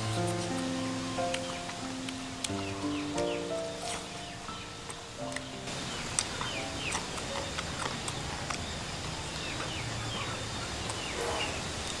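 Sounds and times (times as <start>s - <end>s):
animal chirping: 2.4s - 11.7s
chewing clicks: 4.8s - 9.8s.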